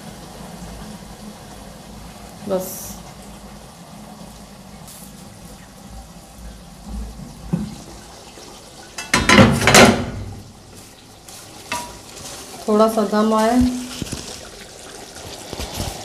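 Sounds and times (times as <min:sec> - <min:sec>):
metal pot lid clattering: 0:09.0 - 0:10.2.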